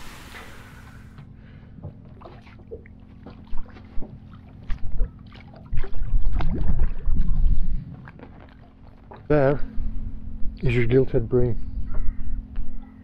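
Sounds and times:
low steady hum: 0.0s - 13.0s
handling thumps in a boat: 1.2s - 5.9s.

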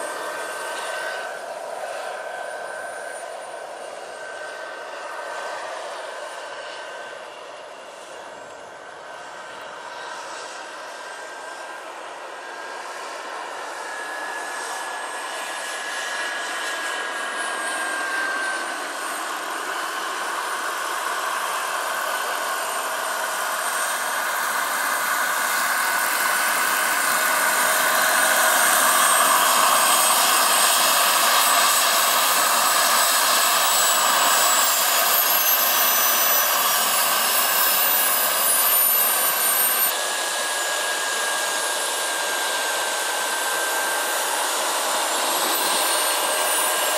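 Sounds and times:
helicopter rotor noise: 0.0s - 46.9s
turbine whine: 0.0s - 46.9s
high whistling tones sliding down: 12.4s - 46.9s.

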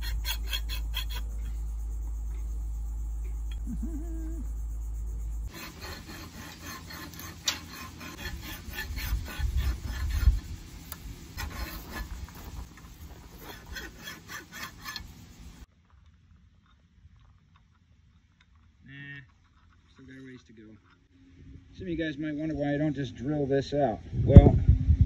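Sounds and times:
hand file scraping metal: 0.0s - 1.6s, 5.4s - 15.6s.

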